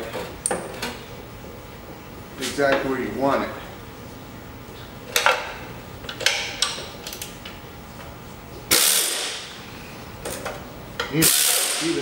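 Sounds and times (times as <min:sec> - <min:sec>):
pneumatic air tool hissing: 0:08.7 - 0:09.4, 0:11.2 - 0:12.0.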